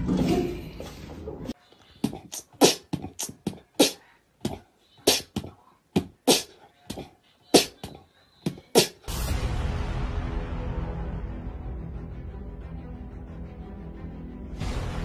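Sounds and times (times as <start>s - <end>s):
music: 9.1s - 15.0s.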